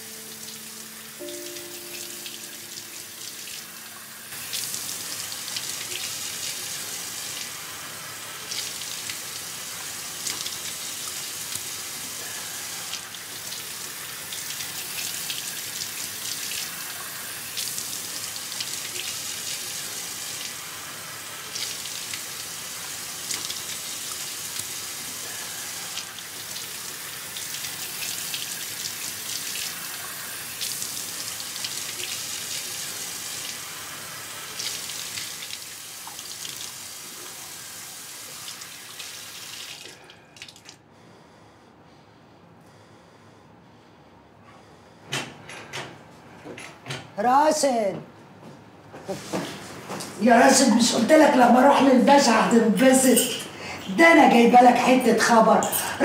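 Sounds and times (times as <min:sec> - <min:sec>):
tap water running into sink: 0:03.2 - 0:40.8.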